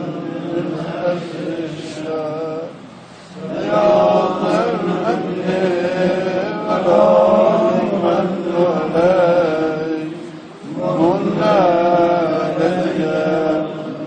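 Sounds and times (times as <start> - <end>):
man chanting a prayer: 0.0 - 2.8.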